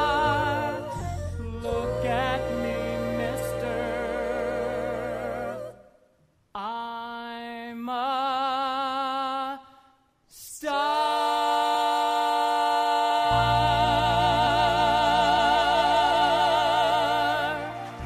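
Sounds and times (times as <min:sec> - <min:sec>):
musical accompaniment: 0:00.0 - 0:05.6, 0:13.4 - 0:18.0
singers holding notes with vibrato: 0:00.0 - 0:05.9, 0:13.3 - 0:18.0.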